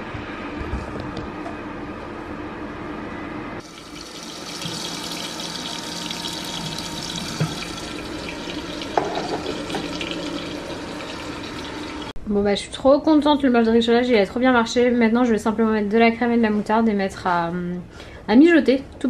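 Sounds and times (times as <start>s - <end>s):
low appliance hum: 0.0s - 19.0s
vegetables sizzling in oil: 3.6s - 12.1s.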